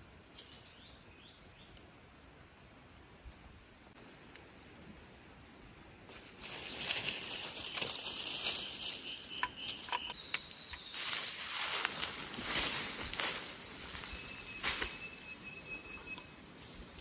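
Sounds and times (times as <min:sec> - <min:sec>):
rustling crackling noise: 0:06.0 - 0:15.2.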